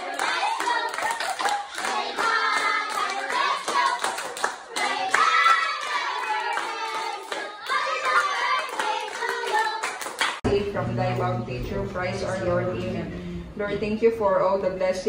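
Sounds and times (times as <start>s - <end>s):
group singing: 0.0s - 9.8s
children clapping: 0.0s - 10.4s.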